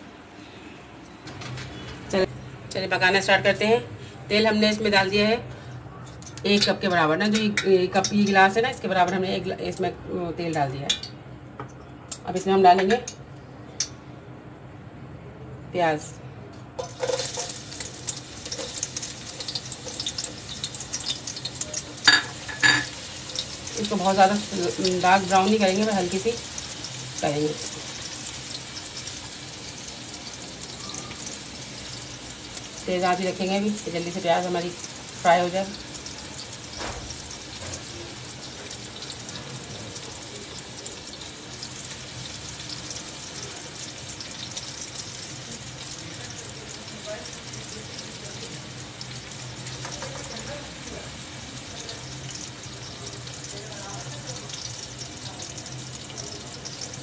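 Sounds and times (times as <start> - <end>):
onions sizzling in hot oil: 16.8 - 57.0.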